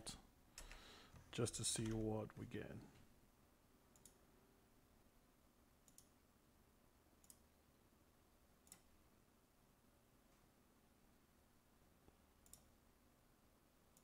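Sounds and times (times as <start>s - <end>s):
faint computer mouse clicks: 3.9s - 4.2s, 5.8s - 6.1s, 7.2s - 7.4s, 12.4s - 12.7s.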